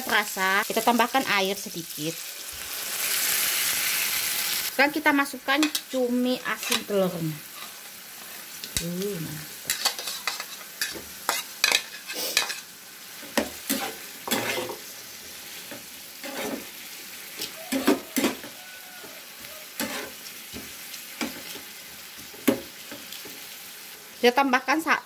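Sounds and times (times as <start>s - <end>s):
food sizzling in oil: 0.0s - 25.0s
spatula scraping frying pan: 6.5s - 8.6s, 9.6s - 21.7s.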